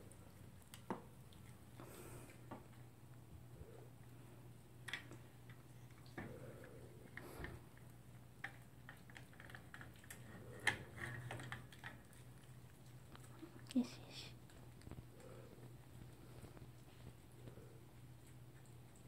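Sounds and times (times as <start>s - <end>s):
dog eating from a bowl: 4.8s - 19.0s.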